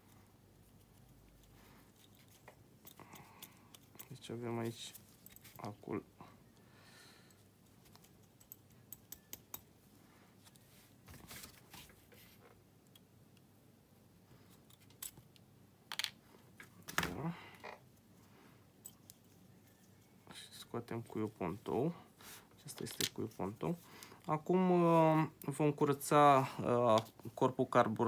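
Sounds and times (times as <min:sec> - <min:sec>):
pliers clicking and scraping metal: 0:00.7 - 0:05.8, 0:07.3 - 0:09.7, 0:14.5 - 0:16.1.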